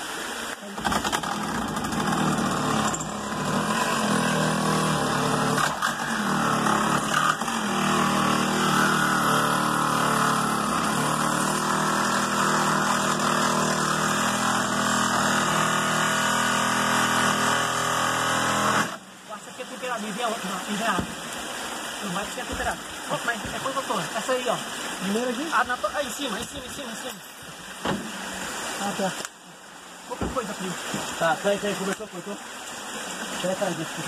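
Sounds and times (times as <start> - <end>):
small engine running under load: 1.0 - 19.0.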